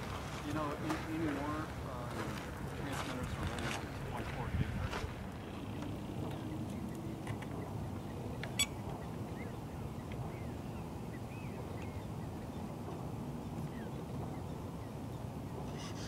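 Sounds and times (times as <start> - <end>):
wind on microphone: 0.0 - 16.0
bird chirps: 5.4 - 12.7.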